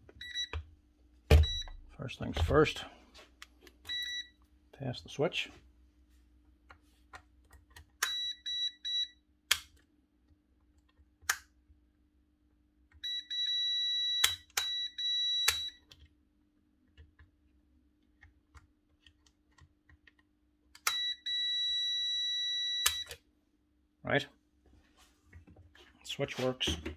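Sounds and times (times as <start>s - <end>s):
multimeter continuity beep: 0.2s - 0.6s, 1.3s - 1.8s, 3.9s - 4.4s, 8.0s - 9.2s, 13.0s - 15.8s, 20.9s - 23.2s.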